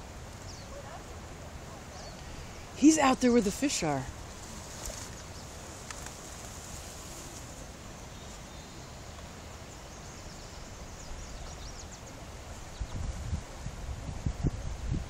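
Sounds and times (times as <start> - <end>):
wind on microphone: 10.9 - 15.0.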